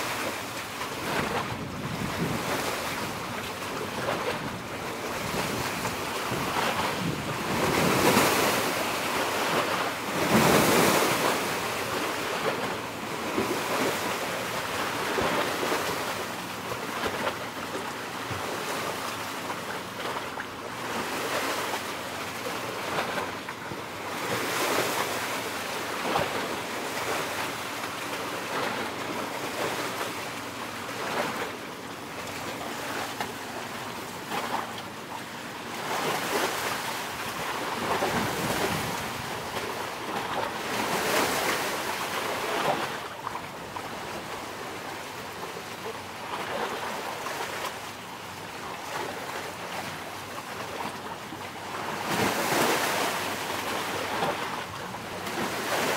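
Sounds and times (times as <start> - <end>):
sea waves washing in: 0.0 - 55.9
wind on microphone: 0.9 - 8.8.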